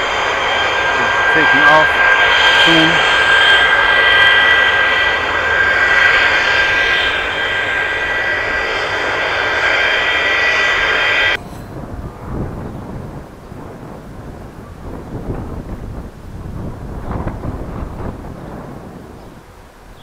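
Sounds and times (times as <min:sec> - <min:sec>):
low rumble: 0:00.0 - 0:19.2
jet engine roar and whine: 0:00.0 - 0:20.0.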